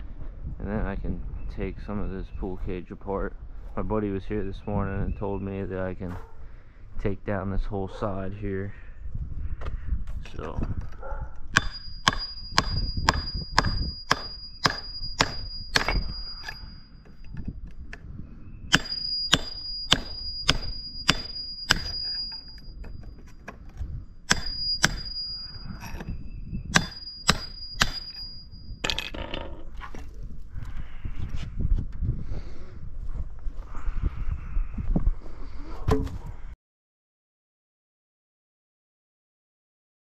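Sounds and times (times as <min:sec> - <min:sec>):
hammer striking steel chisel: 0:11.6 - 0:17.4, 0:18.7 - 0:23.5, 0:24.3 - 0:26.1, 0:26.7 - 0:29.2.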